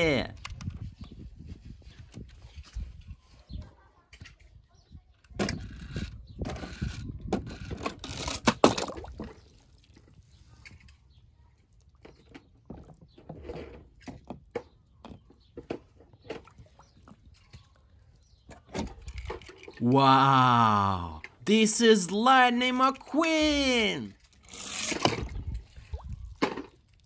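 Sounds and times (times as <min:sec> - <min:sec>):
water splashing and sloshing: 0:08.1 - 0:19.8, 0:24.2 - 0:27.0.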